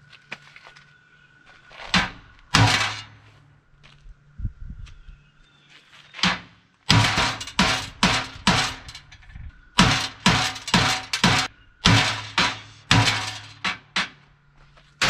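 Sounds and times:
hammer striking steel: 2.0s - 3.2s, 6.2s - 9.2s, 9.8s - 14.2s.

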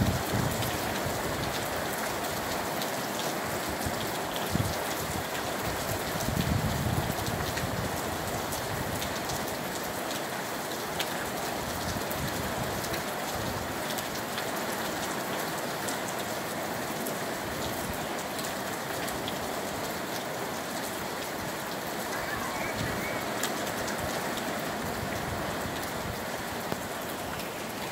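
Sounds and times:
steady rain falling: 0.0s - 27.9s.

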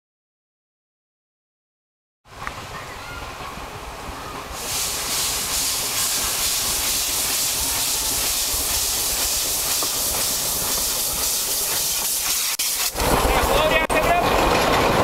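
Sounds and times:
steam locomotive approaching: 2.3s - 15.0s
steam hissing from cylinders: 4.6s - 15.0s.

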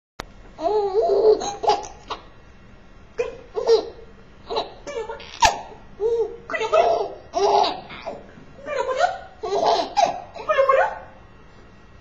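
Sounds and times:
baby giggling: 0.6s - 2.3s, 3.2s - 11.0s.

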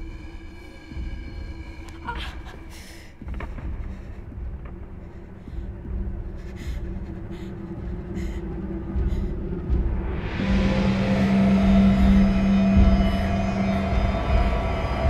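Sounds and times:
low rumbling drone: 0.0s - 15.0s
steady low tone: 0.0s - 15.0s.

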